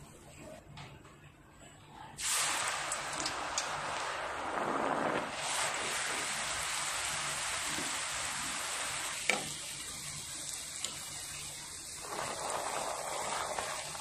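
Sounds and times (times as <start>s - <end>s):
batter sizzling in hot oil: 2.2s - 14.0s.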